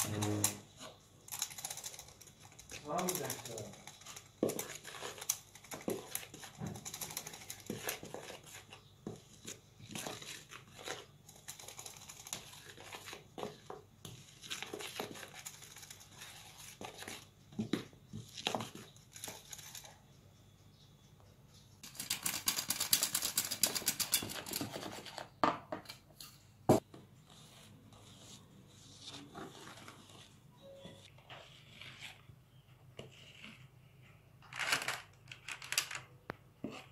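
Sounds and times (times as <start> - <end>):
spatula scraping batter: 0.0 - 20.2, 27.2 - 34.3, 36.6 - 36.9.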